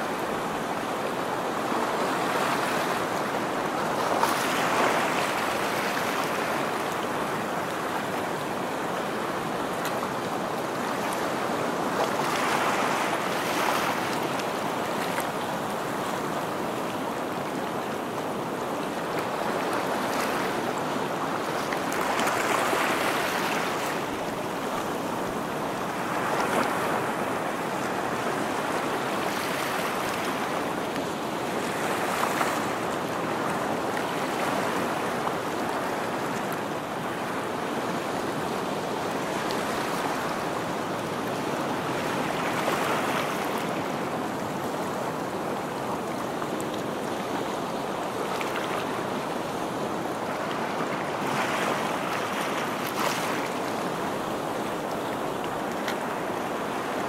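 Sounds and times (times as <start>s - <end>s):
ocean surf on stony shore: 0.0s - 57.0s.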